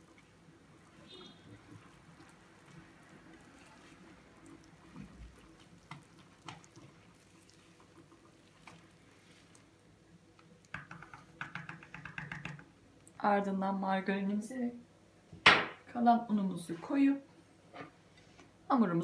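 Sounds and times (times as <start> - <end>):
whisk squelching in batter: 0.0 - 9.8.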